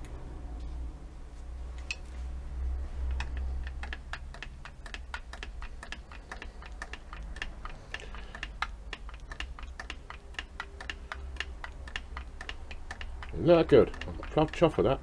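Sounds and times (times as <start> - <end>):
grease gun clicking: 3.1 - 15.0.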